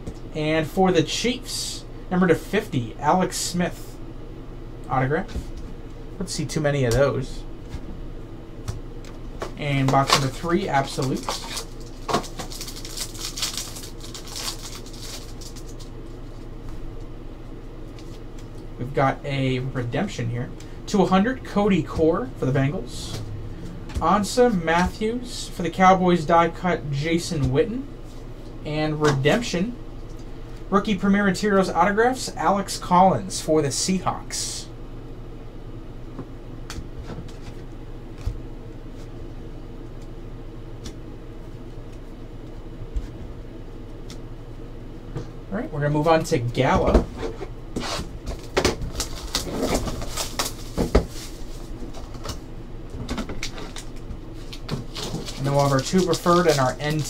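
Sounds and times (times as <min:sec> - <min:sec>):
low room hum: 0:00.0 - 0:57.0
plastic wrapper crinkling: 0:10.0 - 0:16.5, 0:48.4 - 0:52.4, 0:53.4 - 0:57.0.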